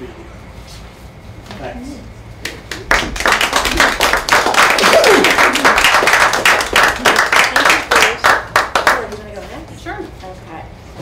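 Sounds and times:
audience applauding: 0:02.7 - 0:09.1.

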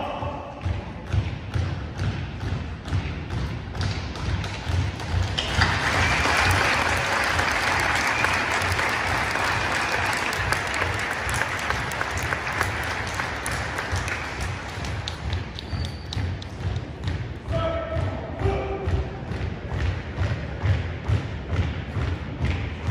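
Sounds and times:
audience applauding: 0:05.3 - 0:15.7.

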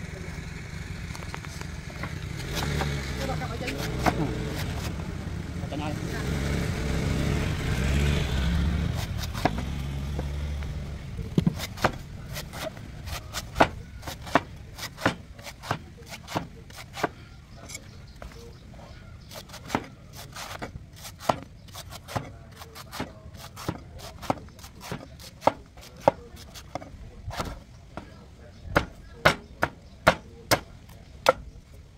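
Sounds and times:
passing vehicle rumble: 0:00.0 - 0:15.3
knife chopping coconut husk: 0:02.0 - 0:05.0, 0:08.8 - 0:10.7, 0:11.3 - 0:17.9, 0:19.2 - 0:31.5.

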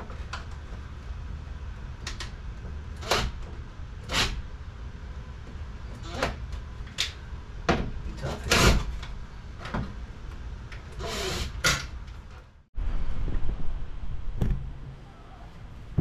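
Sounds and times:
low steady rumble: 0:12.0 - 0:16.0.

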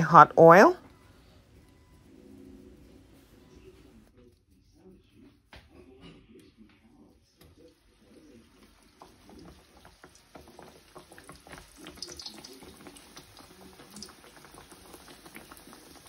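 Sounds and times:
dough sizzling in hot oil: 0:07.3 - 0:16.0.

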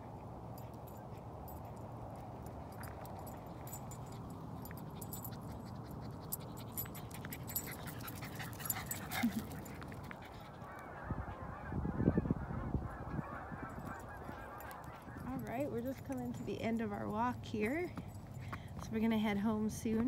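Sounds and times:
outdoor background noise: 0:00.0 - 0:20.0
geese honking: 0:10.5 - 0:15.4.

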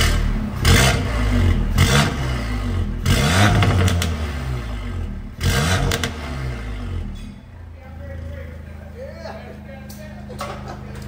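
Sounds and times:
exhaust cracks: 0:00.0 - 0:08.7
car engine revving: 0:00.0 - 0:09.0.

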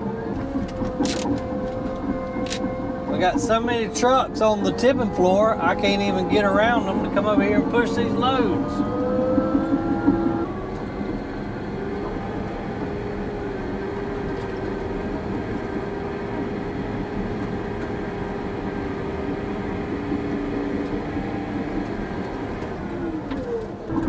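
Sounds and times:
bulldozer diesel engine running: 0:00.0 - 0:24.0.

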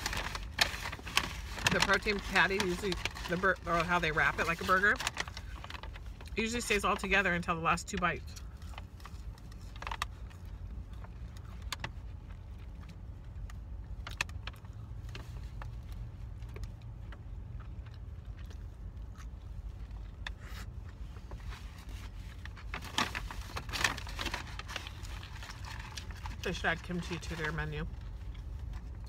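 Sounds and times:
paper wrapper crinkling: 0:00.0 - 0:07.1, 0:08.4 - 0:16.6, 0:21.2 - 0:29.0
low rumble inside a car: 0:00.0 - 0:29.0
chewing: 0:16.5 - 0:21.0.

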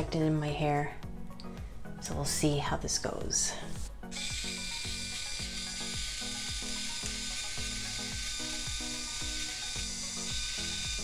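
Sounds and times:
thin motor whine: 0:04.1 - 0:11.0.

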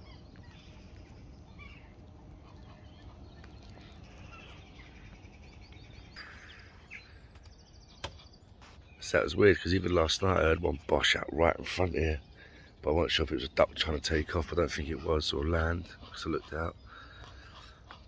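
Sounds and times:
faint birdsong: 0:00.0 - 0:18.0
low background rumble: 0:00.0 - 0:18.0.

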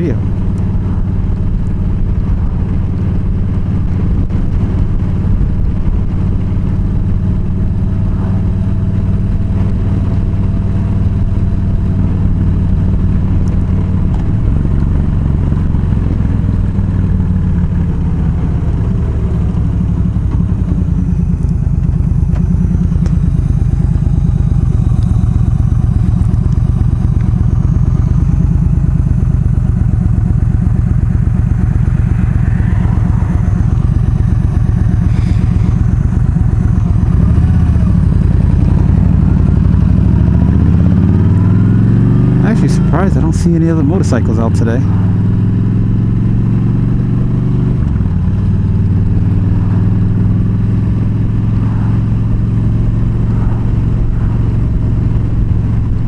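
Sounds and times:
motorcycle engine rumbling: 0:00.0 - 0:56.0
wind noise: 0:00.1 - 0:39.6, 0:47.7 - 0:56.0.

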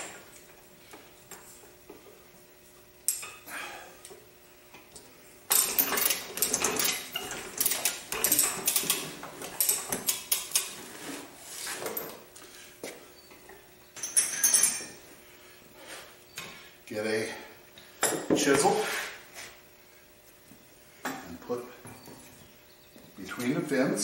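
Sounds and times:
steel chain rattling: 0:05.5 - 0:10.7, 0:14.0 - 0:15.0
short metallic clinks: 0:14.0 - 0:15.0.

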